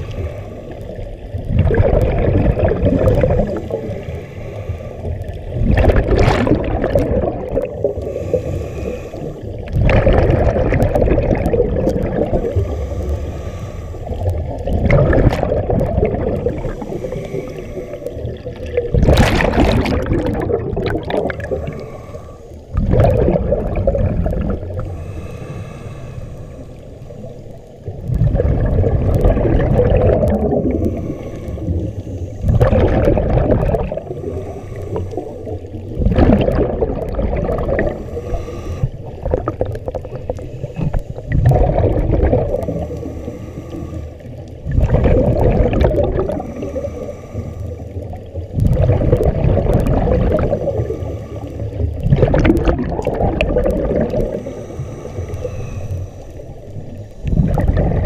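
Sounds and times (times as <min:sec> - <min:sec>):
exhaled bubbles gurgling: 0:00.0 - 0:58.0
regulator hissing inhalations: 0:07.8 - 0:09.6, 0:12.4 - 0:14.3, 0:16.7 - 0:18.2, 0:21.5 - 0:22.7, 0:24.8 - 0:27.3, 0:30.8 - 0:32.4, 0:34.2 - 0:35.5, 0:37.9 - 0:39.0, 0:42.8 - 0:44.3, 0:46.4 - 0:47.9, 0:54.3 - 0:57.3.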